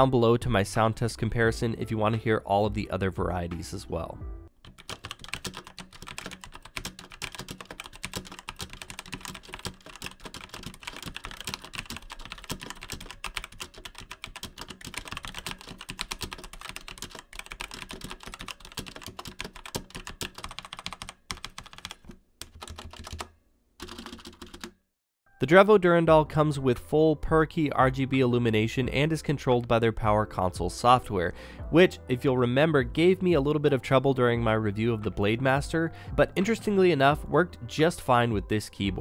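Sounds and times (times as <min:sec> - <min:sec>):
mechanical keyboard typing: 0:04.6 - 0:24.8.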